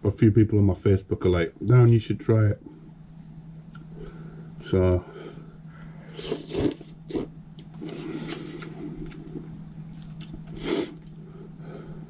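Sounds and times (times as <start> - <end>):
low hum: 0.0 - 12.0
soft eating noises: 2.6 - 12.0
person slurping noodles: 6.1 - 9.2.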